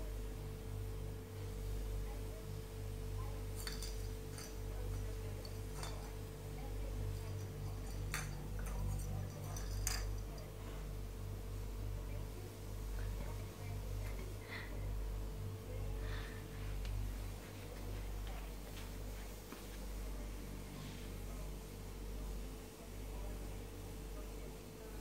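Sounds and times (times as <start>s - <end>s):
sharp clicks and clinks: 3.6s - 6.2s, 7.2s - 10.5s.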